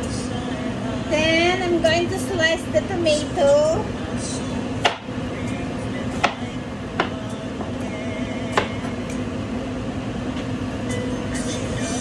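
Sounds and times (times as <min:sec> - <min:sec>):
steady hum: 0:00.0 - 0:12.0.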